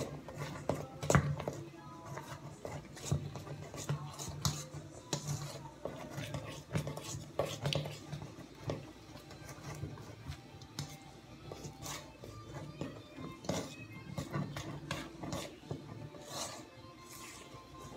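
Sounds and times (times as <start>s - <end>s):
hands scraping metal bowl: 0.0s - 17.9s.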